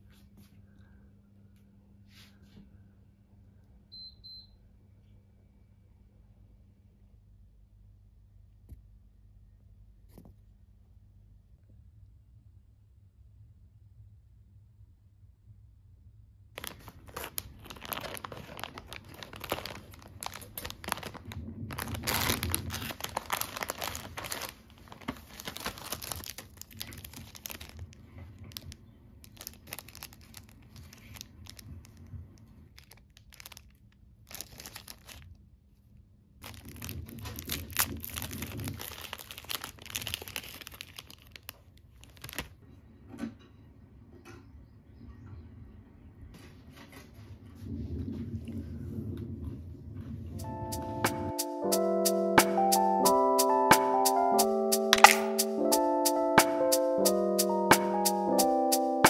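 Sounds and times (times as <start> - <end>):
plastic wrappers crinkling and tearing: 16.6 - 35.4, 36.4 - 42.6, 54.9 - 55.5.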